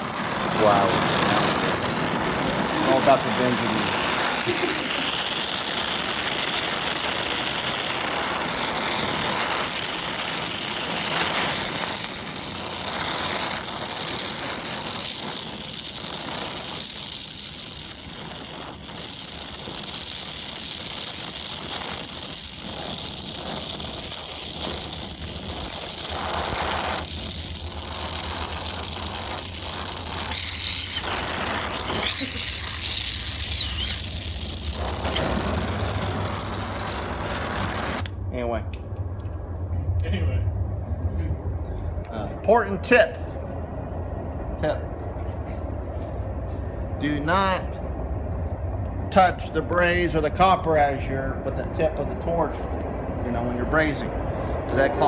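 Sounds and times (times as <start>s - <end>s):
torch flame hissing: 0.0s - 38.6s, 44.6s - 55.0s
low steady hum: 21.6s - 55.0s.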